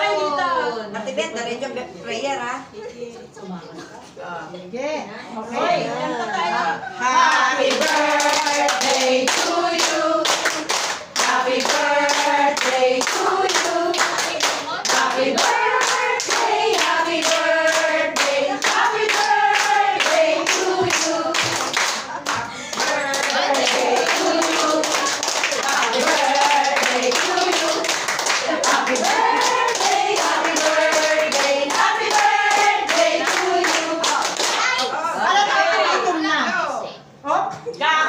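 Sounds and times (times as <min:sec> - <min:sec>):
women singing together: 0:05.6 - 0:34.5
people clapping along: 0:07.3 - 0:34.9.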